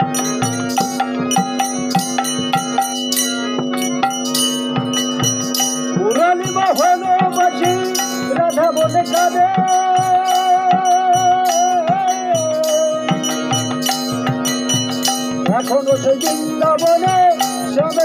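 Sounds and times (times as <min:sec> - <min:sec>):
hand drum beat: 0:00.0 - 0:18.0
small cymbals: 0:00.0 - 0:18.0
steady drone: 0:00.0 - 0:18.0
man singing: 0:06.0 - 0:13.6, 0:15.4 - 0:18.0.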